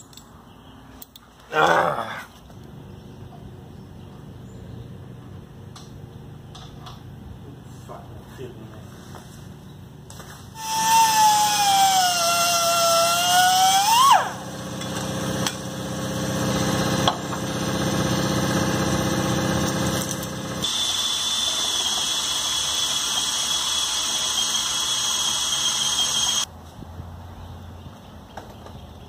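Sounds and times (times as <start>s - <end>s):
low tool noise: 8.8s - 26.5s
cordless drill drilling: 10.6s - 14.4s, 20.6s - 26.5s
grinder cutting metal: 10.6s - 26.5s.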